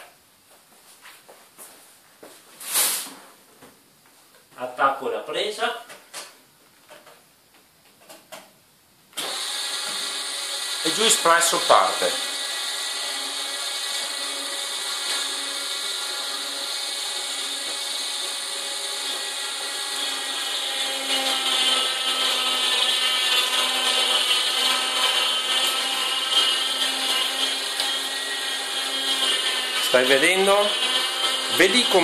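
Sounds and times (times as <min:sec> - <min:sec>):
fruit crushed by auger: 0:09.2 - 0:32.0
juicer motor hum: 0:09.2 - 0:32.0.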